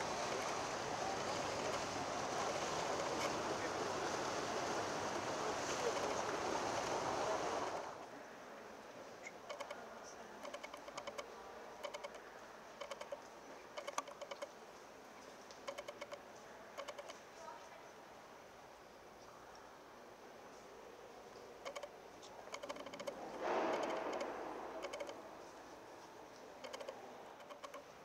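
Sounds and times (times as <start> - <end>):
steady rushing outdoor noise: 0.0 - 8.0.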